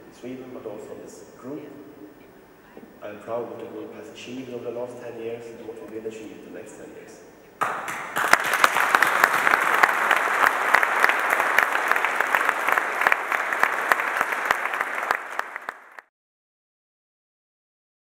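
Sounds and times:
audience applauding: 7.6 - 16.1.

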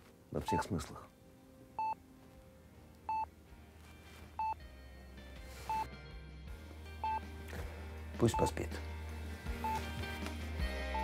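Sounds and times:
heart monitor beeping: 1.8 - 2.0, 3.1 - 3.3, 4.4 - 4.6, 5.7 - 5.9, 9.6 - 10.0.

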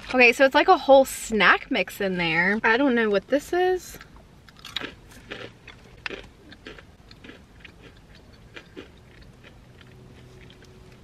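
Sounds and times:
person chewing crunchy snack: 4.4 - 11.0.

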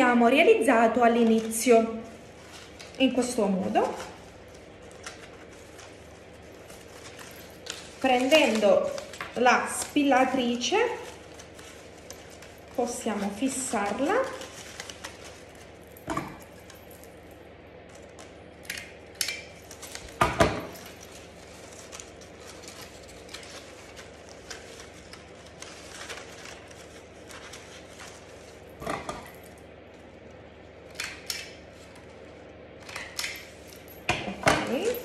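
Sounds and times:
cardstock rustling: 0.8 - 16.8, 19.5 - 28.8.

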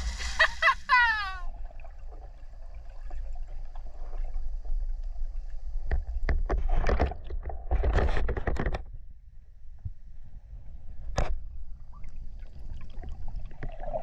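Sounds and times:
muffled underwater rumble: 0.0 - 14.0
clicks and crackles: 5.9 - 9.0.

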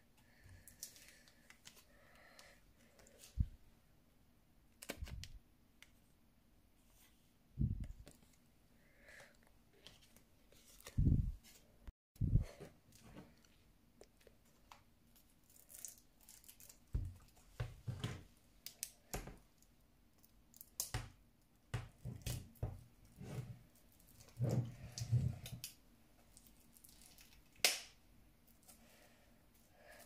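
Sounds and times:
plastic wrap crinkling: 15.1 - 17.5, 23.8 - 27.6.

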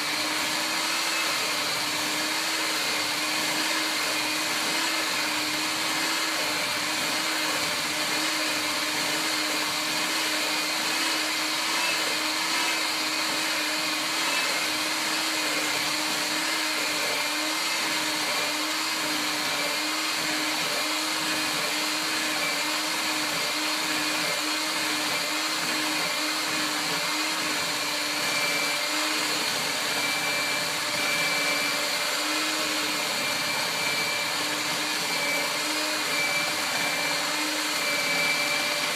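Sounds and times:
electric hand mixer running: 0.0 - 38.9.

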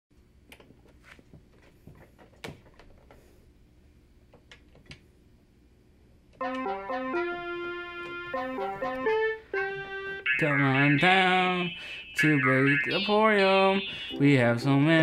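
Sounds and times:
keyboard melody of held notes: 6.4 - 15.0.

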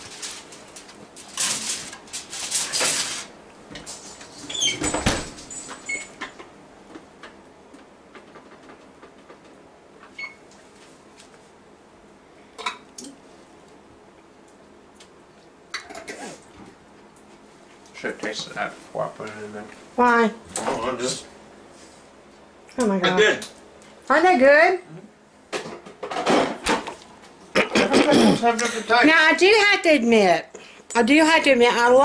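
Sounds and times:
oven door shutting: 4.4 - 6.2
small kitchen clicks and knocks: 25.5 - 27.0.

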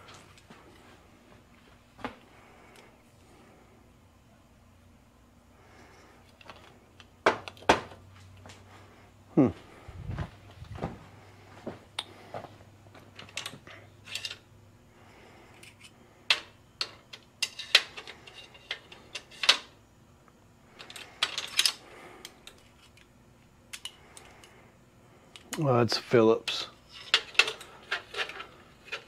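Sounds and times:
screwdrivers clattering together: 6.3 - 7.8, 13.1 - 14.5, 15.5 - 19.8, 20.7 - 23.1, 23.7 - 24.6, 26.4 - 29.0.

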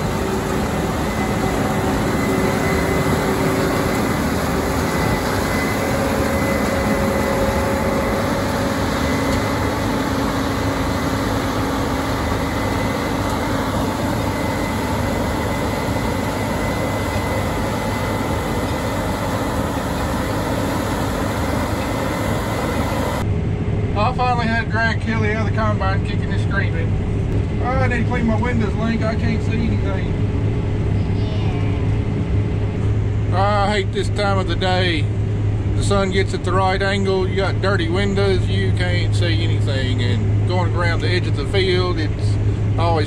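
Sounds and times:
faint steady tones: 0.0 - 23.3
combine harvester drone: 0.0 - 43.0.

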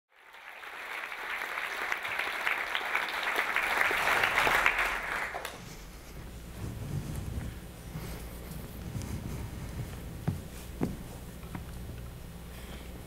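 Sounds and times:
audience applauding: 0.1 - 5.9.

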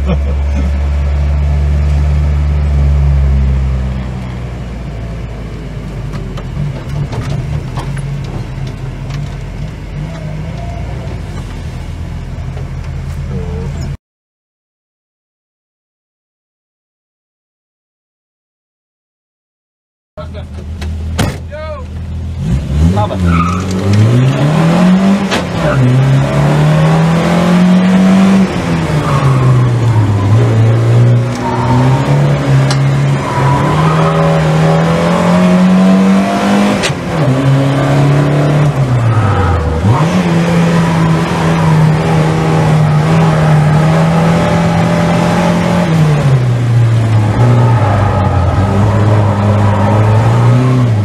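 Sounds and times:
car engine revving: 22.0 - 51.0.

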